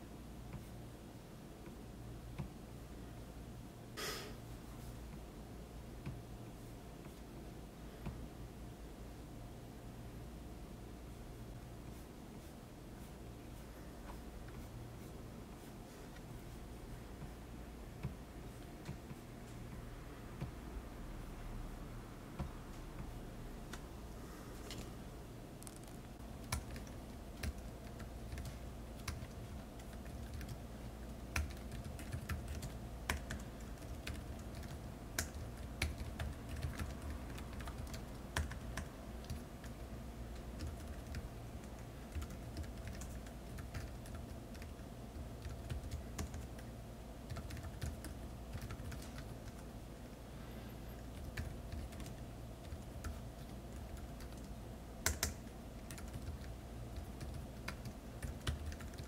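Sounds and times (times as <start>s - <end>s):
low steady hum: 0.0s - 59.0s
laptop keyboard typing: 25.6s - 49.7s, 51.0s - 59.0s.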